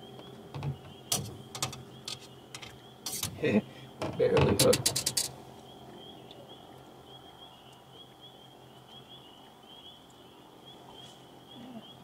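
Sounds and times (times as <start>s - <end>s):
rattle of clicks: 0.6s - 3.4s, 4.6s - 5.3s.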